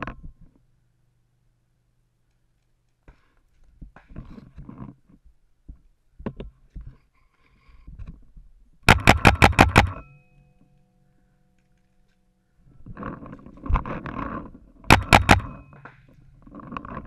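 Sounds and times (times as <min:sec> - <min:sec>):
paintball marker firing: 0:08.9 - 0:10.1, 0:14.9 - 0:16.0.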